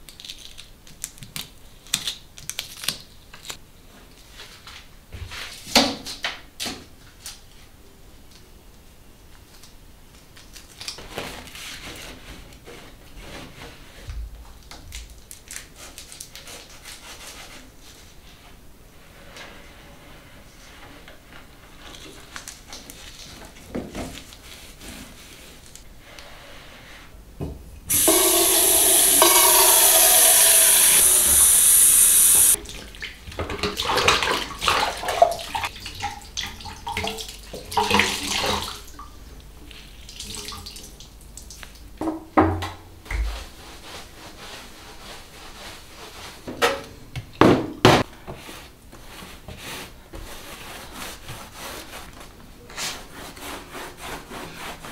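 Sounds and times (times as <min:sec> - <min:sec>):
tap running into sink: 0:27.9 - 0:32.6
water splashing and dripping: 0:27.9 - 0:38.8.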